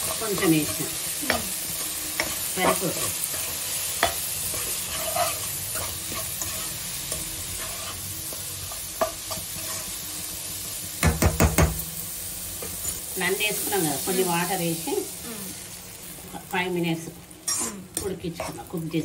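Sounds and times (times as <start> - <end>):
spoon stirring and scraping: 0.0 - 10.0
food sizzling in pan: 0.0 - 19.0.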